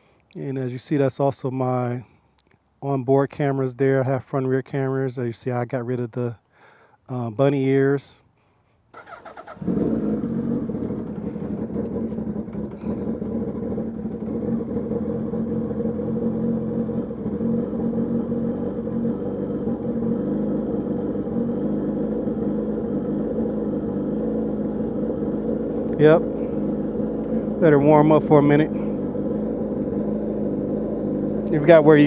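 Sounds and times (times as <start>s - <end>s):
motorcycle engine cranking: 9.0s - 14.6s
motorcycle engine idling: 9.0s - 32.0s.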